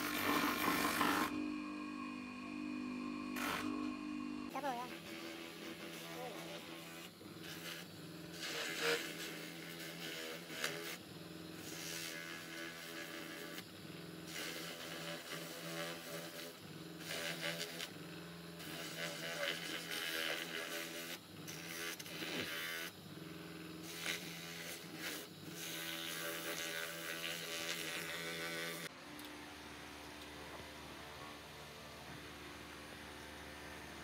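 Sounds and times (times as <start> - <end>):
wood rasping against sander: 0.0 - 1.7, 2.9 - 11.0, 14.3 - 17.9, 18.6 - 23.0, 23.8 - 28.9
spinning sanding drum hum: 0.0 - 21.3.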